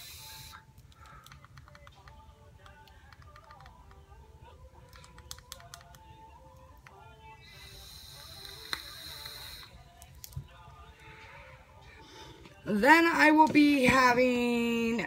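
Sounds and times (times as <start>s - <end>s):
clicks and taps of vape device: 0.8s - 4.0s, 4.9s - 6.0s, 8.2s - 10.4s.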